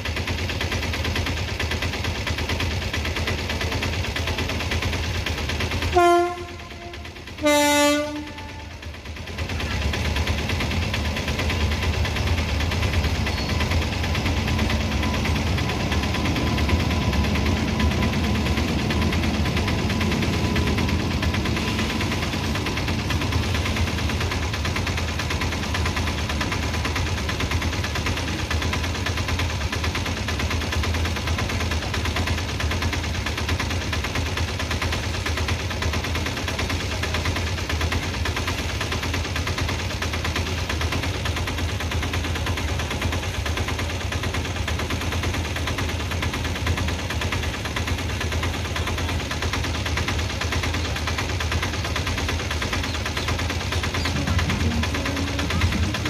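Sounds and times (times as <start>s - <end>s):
freight train rolling past: 0.0s - 56.0s
locomotive horn blasts: 5.9s - 8.8s.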